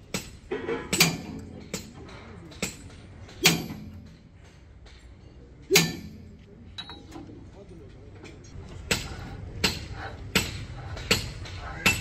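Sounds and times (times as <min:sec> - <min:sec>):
metal tools clinking: 0:06.7 - 0:07.3.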